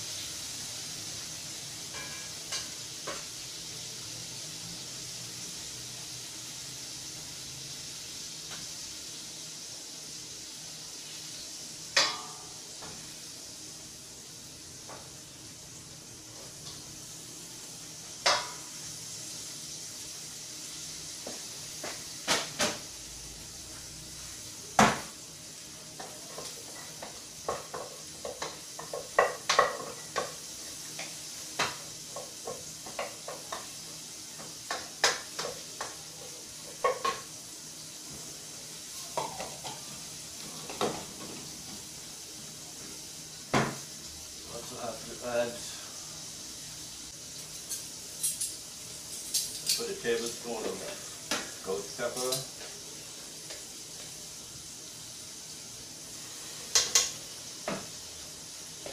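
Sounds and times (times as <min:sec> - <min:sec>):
food sizzling in a frying pan: 0:00.0 - 0:58.9
utensils knocking on metal pans: 0:01.9 - 0:03.2, 0:12.0 - 0:12.6, 0:18.2 - 0:18.6.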